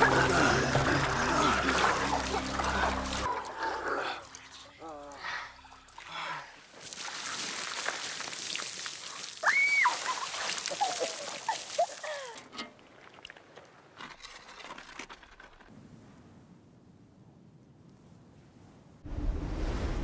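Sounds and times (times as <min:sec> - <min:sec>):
water splashing on people: 0:00.0 - 0:13.7
high excited cry: 0:09.4 - 0:12.4.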